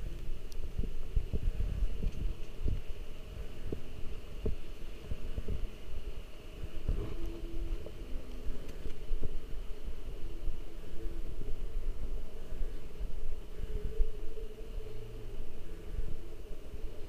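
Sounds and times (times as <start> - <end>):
microphone handling rumble: 6.6 - 9.9.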